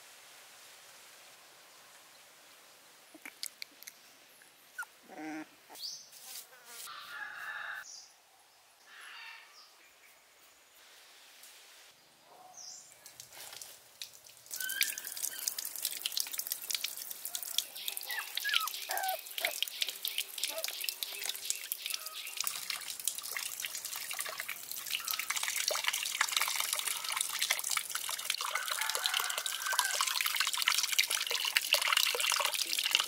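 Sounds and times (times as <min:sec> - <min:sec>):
puppies whimpering: 0:04.8 - 0:05.5, 0:18.1 - 0:19.6
running splashing water: 0:13.1 - 0:33.0
bird chirps and calls: 0:17.8 - 0:22.4.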